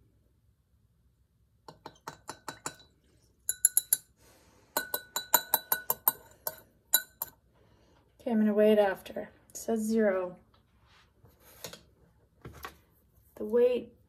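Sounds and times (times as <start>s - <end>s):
metal spatula clinking on glass beaker: 1.7s - 4.1s, 4.8s - 7.4s.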